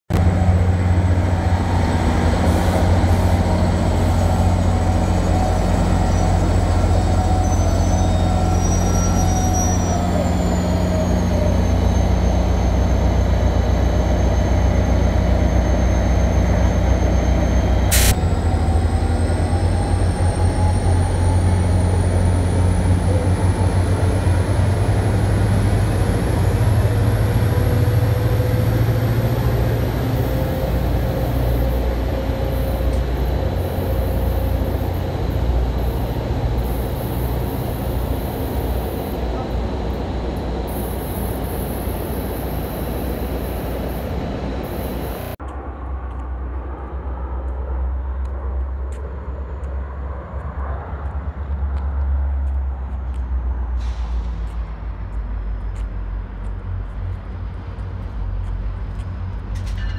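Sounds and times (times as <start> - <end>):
train whine rising in pitch: 0.1 - 45.4
locomotive engine drone: 0.1 - 59.9
wheel squeal: 2.4 - 39.4.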